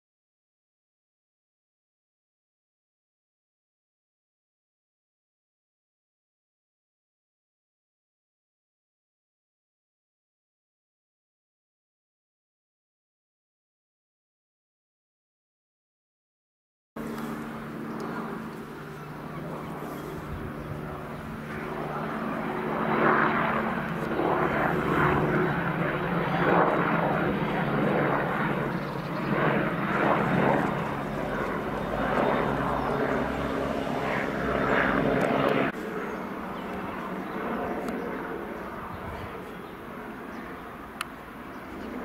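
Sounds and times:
helicopter rotor and engine drone: 0:17.0 - 0:42.0.

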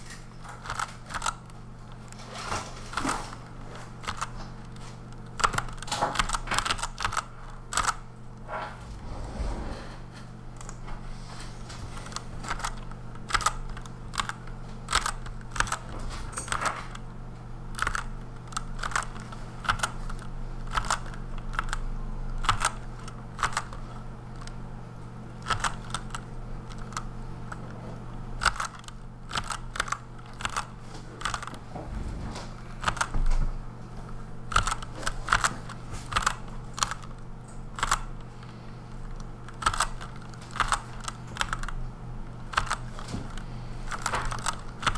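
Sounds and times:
steady low hum: 0:00.0 - 0:44.9
mechanical keyboard typing: 0:00.4 - 0:08.1, 0:12.0 - 0:17.0, 0:17.7 - 0:24.6, 0:25.4 - 0:27.7, 0:28.4 - 0:31.6, 0:32.8 - 0:33.1, 0:34.5 - 0:38.3, 0:39.0 - 0:44.9.

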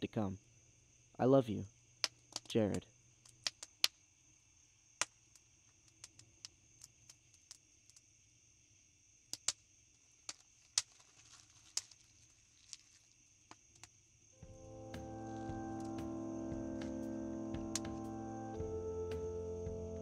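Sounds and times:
crickets chirring: 0:00.0 - 0:20.0
campfire crackling and popping: 0:03.3 - 0:03.9
music: 0:14.4 - 0:20.0.

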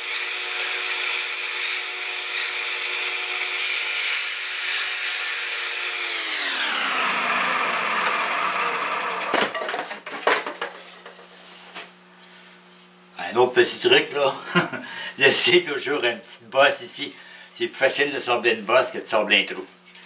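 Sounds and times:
bowl gouge cutting wood: 0:00.0 - 0:09.4
wood lathe running: 0:00.0 - 0:09.5.

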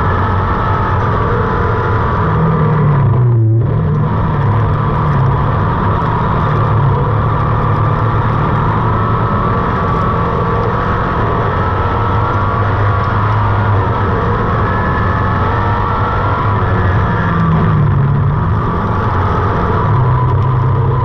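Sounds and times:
buggy engine running hard: 0:00.0 - 0:21.0
tyre and dirt noise: 0:00.0 - 0:21.0.

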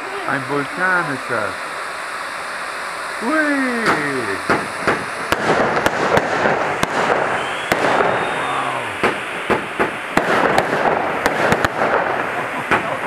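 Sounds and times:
firework fountain hissing: 0:00.0 - 0:13.0
firework cracks and pops: 0:03.8 - 0:13.0.

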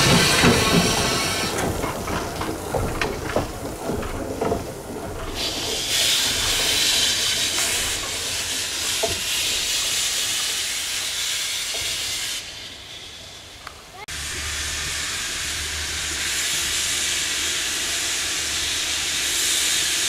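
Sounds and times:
steam hissing: 0:00.0 - 0:20.0.

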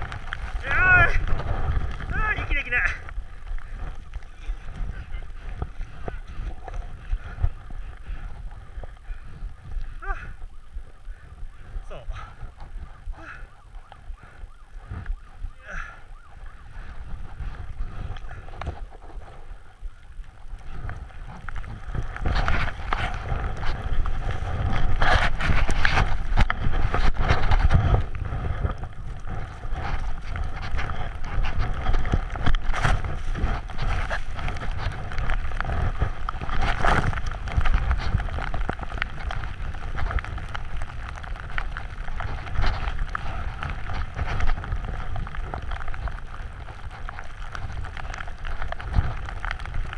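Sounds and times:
wind buffeting microphone: 0:00.0 - 0:49.9
snowboard scraping through powder: 0:32.6 - 0:40.1.

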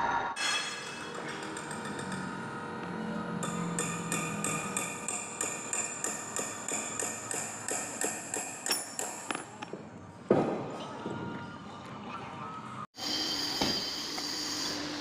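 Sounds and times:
hammer striking metal: 0:00.4 - 0:02.4, 0:03.3 - 0:09.5.

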